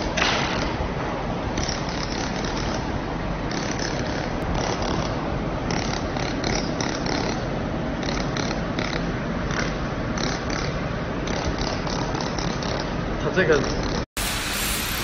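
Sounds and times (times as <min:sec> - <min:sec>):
laser welding machine running: 0:14.2 - 0:15.0.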